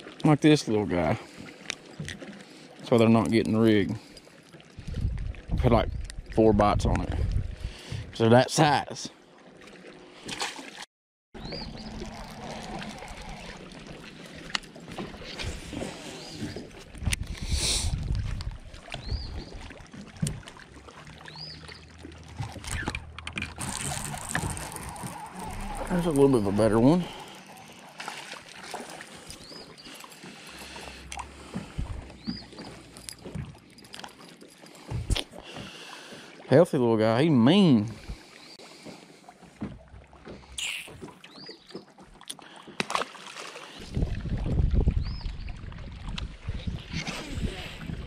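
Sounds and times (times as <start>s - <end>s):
water lapping against boat hull: 0.0s - 48.0s
fishing tackle knocks and clicks: 22.4s - 26.2s.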